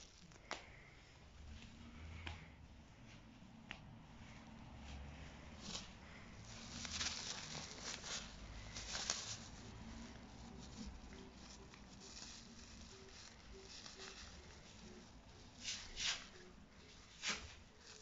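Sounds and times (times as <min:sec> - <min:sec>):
plastic bag crinkling: 0:05.6 - 0:18.0.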